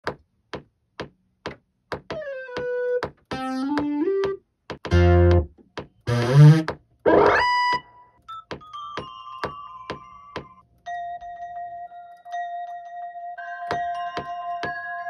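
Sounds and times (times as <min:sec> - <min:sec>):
electronic synthesizer music: 0:02.1 - 0:05.5, 0:06.1 - 0:07.9.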